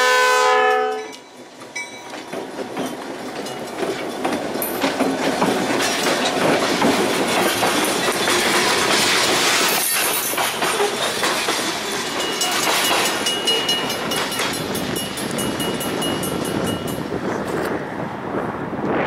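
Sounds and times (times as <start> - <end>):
freight train rolling past: 0.0 - 19.0
wheels clacking over rail joints: 0.8 - 17.8.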